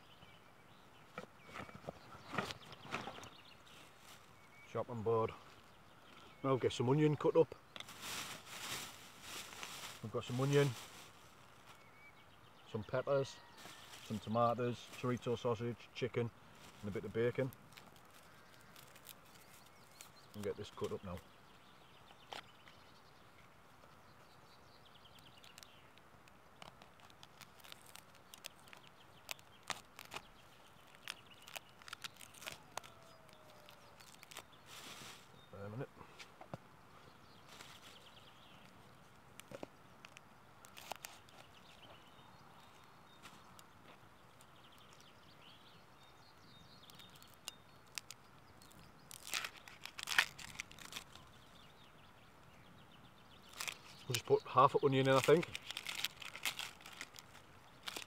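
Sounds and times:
plastic bag crinkling: 0:07.8 - 0:11.5, 0:16.6 - 0:21.0, 0:26.6 - 0:35.3, 0:39.4 - 0:41.6, 0:46.9 - 0:51.3, 0:53.5 - 0:58.0.

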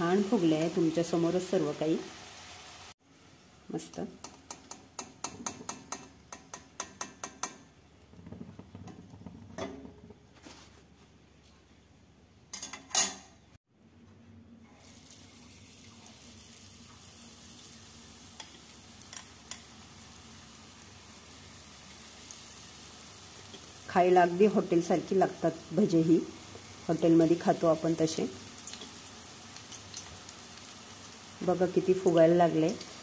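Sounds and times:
batter sizzling in hot oil: 0:00.0 - 0:03.2, 0:14.7 - 0:33.0.

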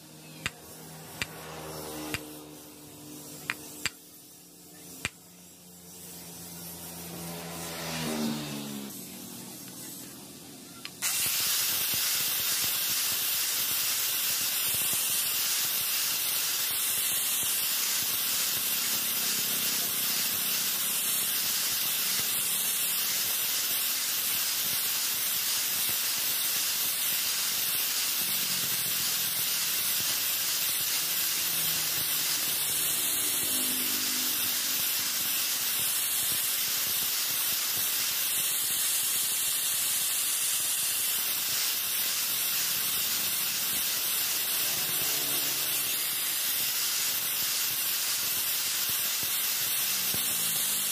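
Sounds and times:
angle grinder grinding steel: 0:28.2 - 0:35.9, 0:42.0 - 0:46.6, 0:49.2 - 0:50.9.

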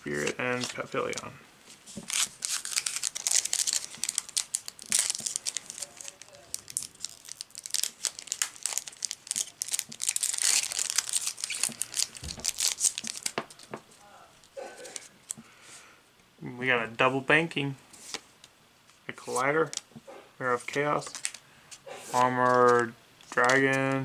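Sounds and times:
foil wrapper crinkling and tearing: 0:01.9 - 0:13.8, 0:14.4 - 0:15.4, 0:21.0 - 0:21.4.

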